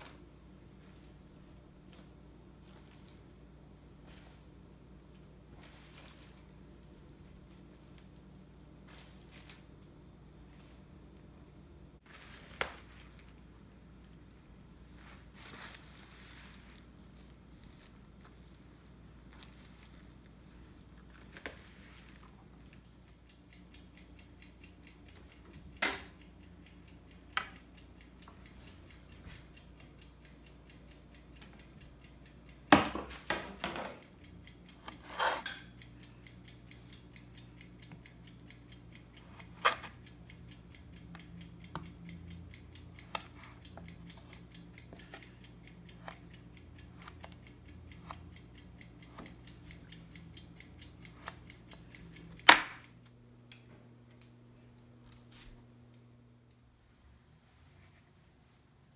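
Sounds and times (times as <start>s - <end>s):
knife ticking on wooden board: 34.0s - 53.0s.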